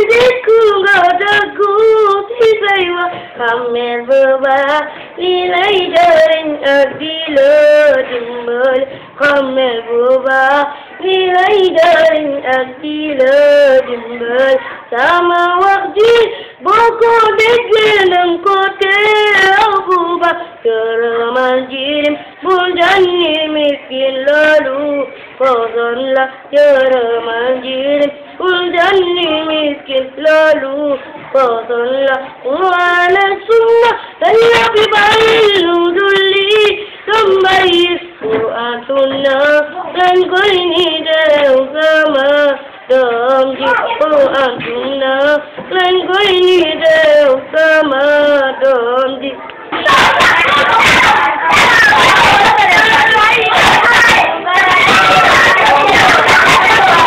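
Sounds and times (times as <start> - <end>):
girl singing unaccompanied: 0.0 - 57.0
quick breaths: 3.1 - 3.4, 10.7 - 11.0, 16.3 - 16.6, 34.0 - 34.2.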